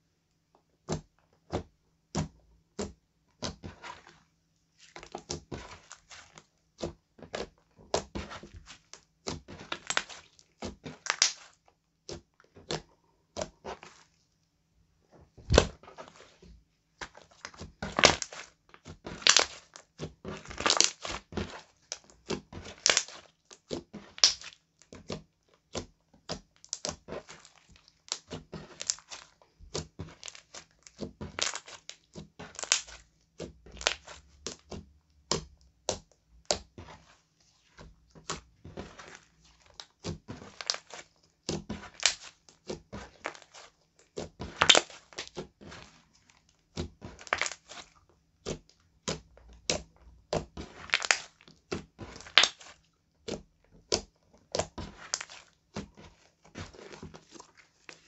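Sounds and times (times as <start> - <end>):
slime squelching and popping: 0.8 - 14.2, 15.4 - 58.0.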